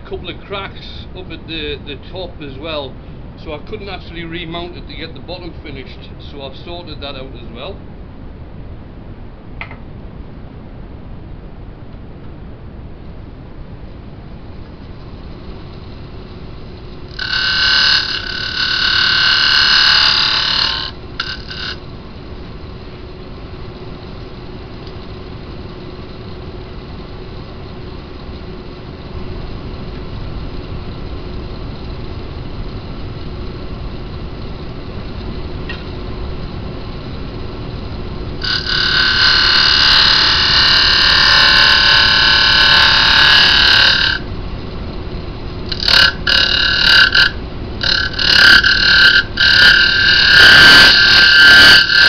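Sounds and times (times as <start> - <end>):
wood lathe humming: 15.4 - 23.0, 37.9 - 52.0
turning tool cutting wood: 17.0 - 21.8, 38.4 - 44.3, 45.7 - 52.0.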